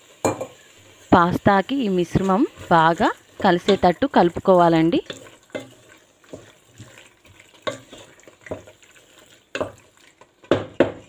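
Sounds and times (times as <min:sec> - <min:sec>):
faint sauce sizzle: 0:00.0 - 0:11.0
spatula scraping a pot: 0:05.0 - 0:11.0.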